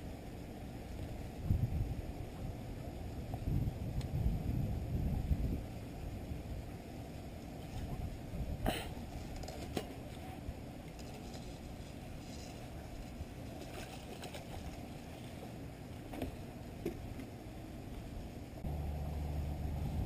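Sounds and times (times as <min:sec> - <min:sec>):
wind rumble on microphone: 0:00.9 - 0:13.5, 0:18.2 - 0:20.0.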